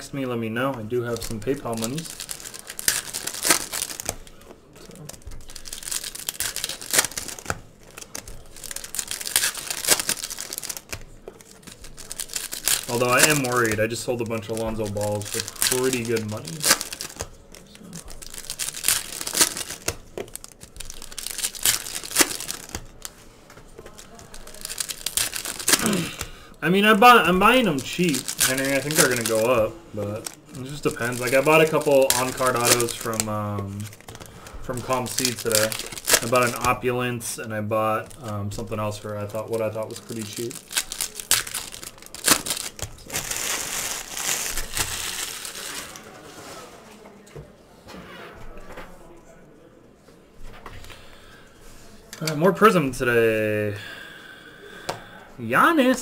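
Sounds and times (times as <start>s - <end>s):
foil wrapper crinkling and tearing: 1.1s - 36.9s, 38.0s - 46.2s.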